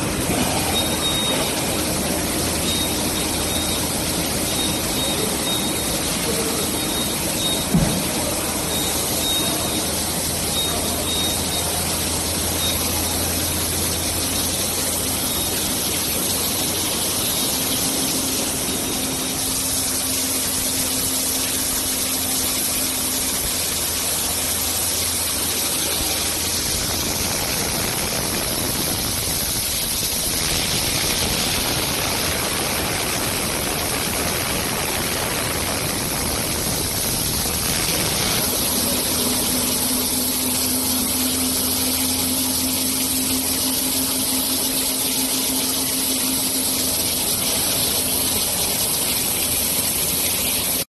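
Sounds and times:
conveyor machinery hiss and hum: 0.0s - 50.9s.

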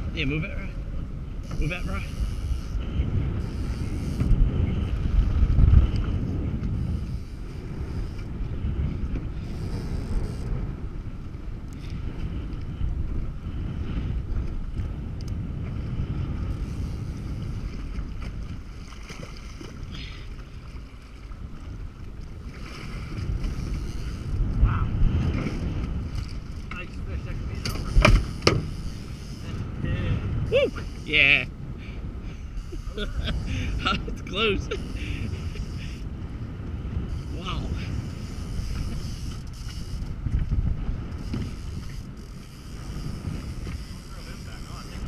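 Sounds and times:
choppy water hissing around hull: 0.0s - 45.0s
wind buffeting microphone: 0.0s - 45.0s.

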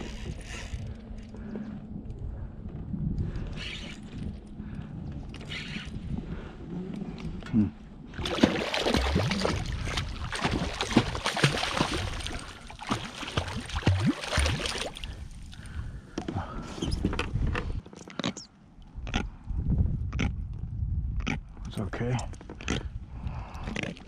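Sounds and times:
fish splashing in water: 8.2s - 15.6s.

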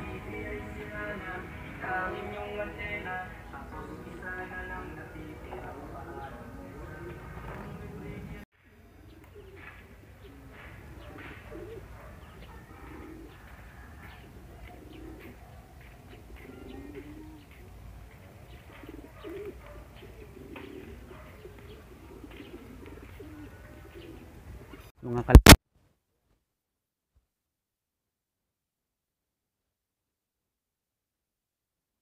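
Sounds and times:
small birds chirping: 0.0s - 25.3s
pigeons cooing: 3.9s - 24.9s.

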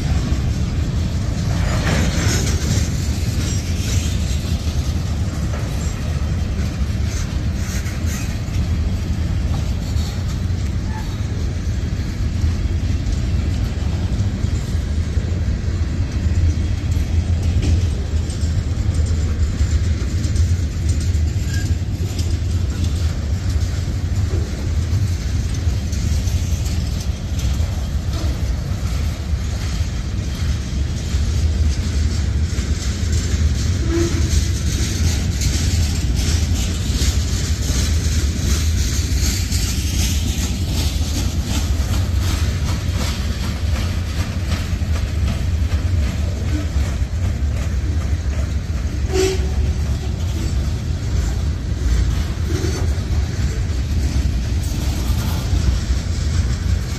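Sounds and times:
freight train rumbling past: 0.0s - 56.9s
wheel clatter: 0.0s - 56.9s
wheel squeals: 21.3s - 22.9s.

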